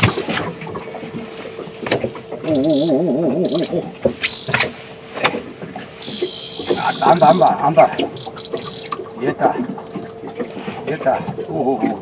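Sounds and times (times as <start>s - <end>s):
steady hum: 0.0s - 12.0s
fishing reel whine: 2.4s - 4.8s, 6.0s - 10.1s.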